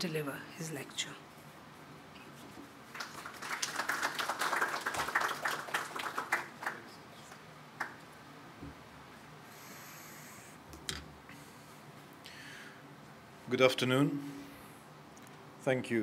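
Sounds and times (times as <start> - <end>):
audience applauding: 2.9 - 8.0.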